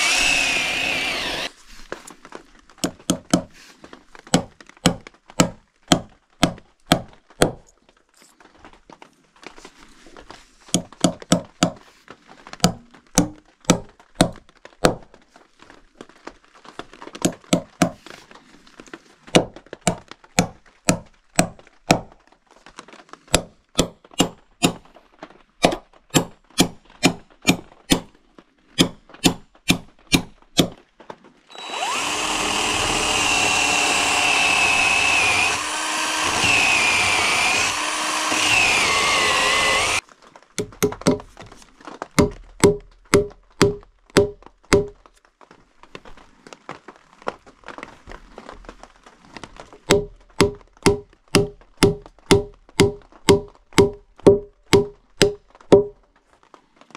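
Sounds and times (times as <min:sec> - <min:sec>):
cordless drill boring into wood: 0:00.0 - 0:01.6, 0:31.5 - 0:40.0.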